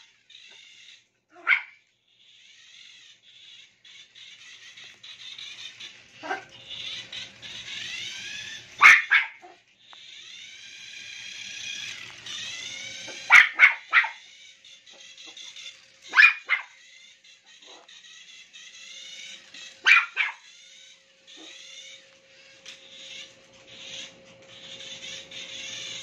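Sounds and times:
toy car electric motor whine: 0:00.0 - 0:26.0
dog yapping: 0:01.3 - 0:01.8, 0:06.2 - 0:07.0, 0:08.5 - 0:09.6, 0:13.0 - 0:14.3, 0:14.9 - 0:16.8, 0:17.5 - 0:18.0, 0:19.6 - 0:20.5, 0:21.3 - 0:21.8.

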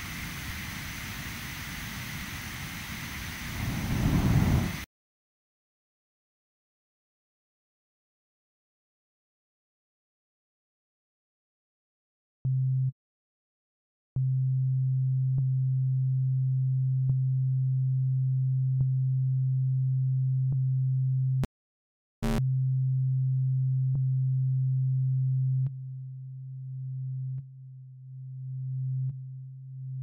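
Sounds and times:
low synthesizer tone: 0:22.2 - 0:29.9.

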